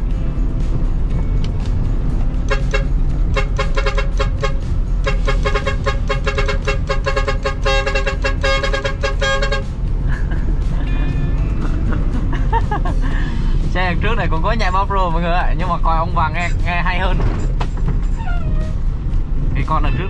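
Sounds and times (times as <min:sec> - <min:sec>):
diesel engine running: 0:00.0 - 0:20.0
truck musical horn tooting: 0:02.3 - 0:10.0.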